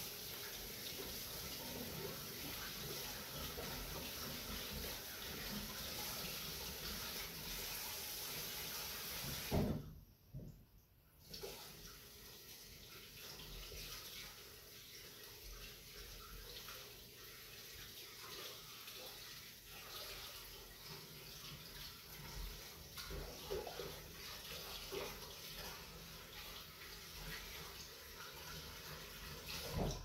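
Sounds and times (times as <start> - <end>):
tap water running into sink: 0.0 - 10.5, 11.2 - 30.0
knock: 9.4 - 10.6.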